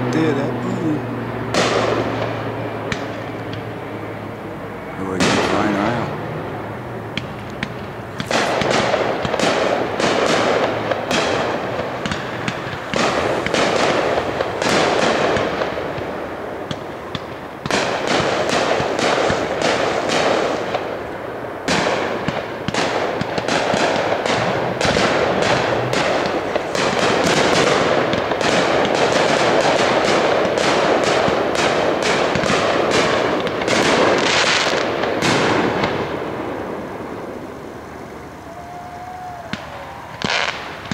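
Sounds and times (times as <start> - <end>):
fireworks shells bursting: 7.1 - 21.1, 21.7 - 37.5, 39.0 - 40.9.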